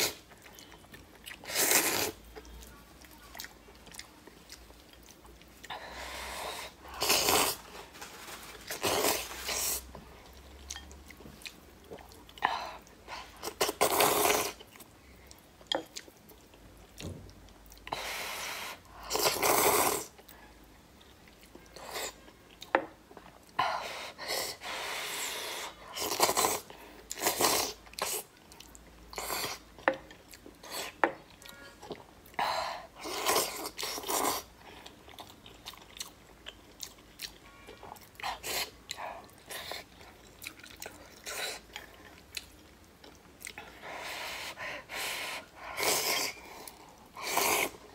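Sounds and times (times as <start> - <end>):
chewing: 33.0 - 44.0.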